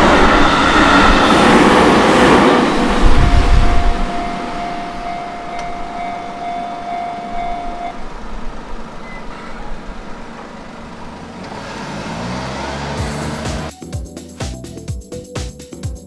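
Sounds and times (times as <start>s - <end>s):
steady high whine: 0.0s - 11.3s
small car driving past: 3.6s - 13.7s.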